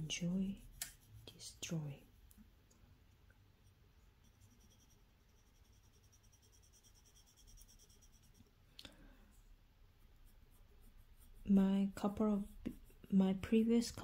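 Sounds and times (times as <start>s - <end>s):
pencil scratching on paper: 0.0s - 1.8s, 4.2s - 8.5s, 9.9s - 14.0s.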